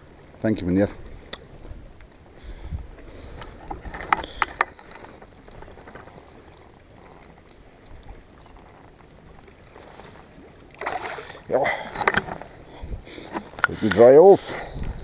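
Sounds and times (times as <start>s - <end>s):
faint lapping water: 0.0s - 15.0s
water splashing: 3.9s - 14.8s.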